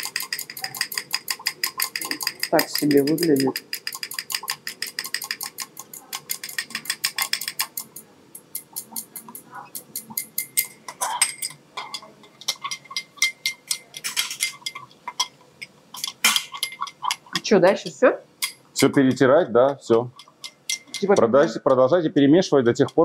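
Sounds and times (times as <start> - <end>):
glass rod clinking in beaker: 0.0 - 17.5, 18.4 - 21.6.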